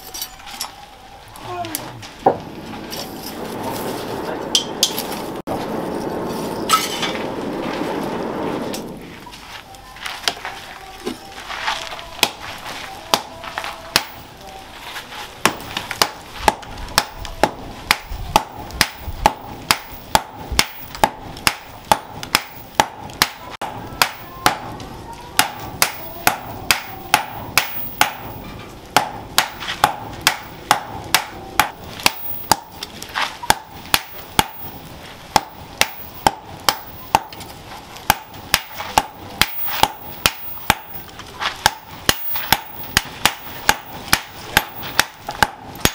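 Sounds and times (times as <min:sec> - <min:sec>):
hammer pounding hot metal on anvil: 0:13.9 - 0:14.2, 0:15.4 - 0:24.8, 0:25.4 - 0:45.9.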